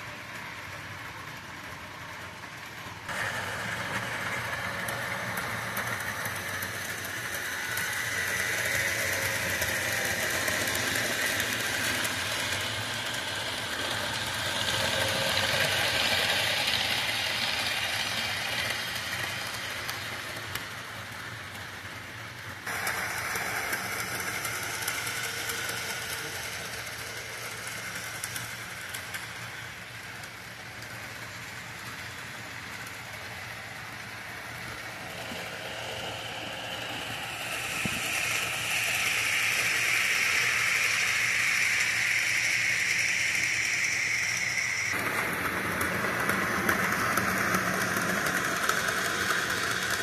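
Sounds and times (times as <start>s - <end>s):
model trains whirring on track: 0.0s - 50.0s.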